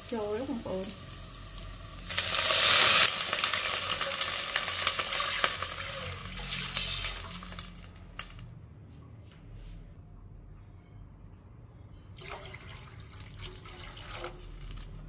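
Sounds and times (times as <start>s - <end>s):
water sizzling in hot oil: 0.0s - 8.4s
water pouring from a jug: 12.2s - 15.0s.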